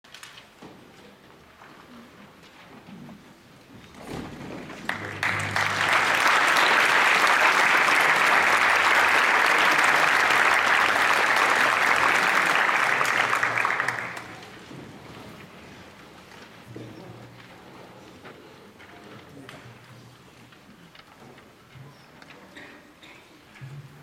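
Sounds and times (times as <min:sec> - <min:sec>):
audience applauding: 0:04.6 - 0:14.7.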